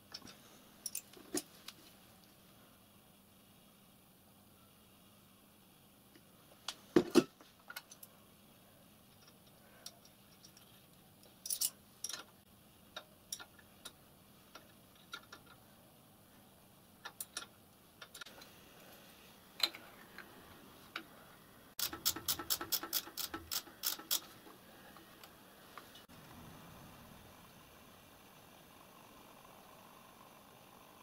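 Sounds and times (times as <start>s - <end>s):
metal clicks and taps of fittings: 17.0s - 18.3s.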